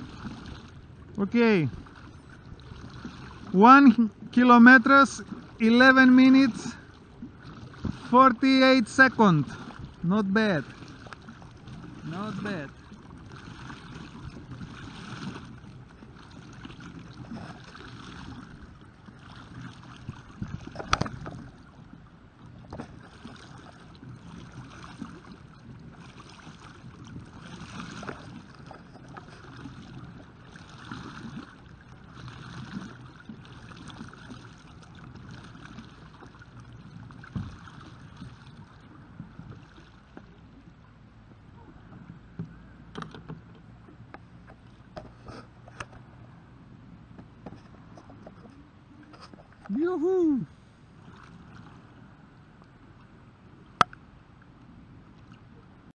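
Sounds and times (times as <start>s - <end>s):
paddle blades splashing in water: 0.0s - 40.9s, 47.1s - 54.1s.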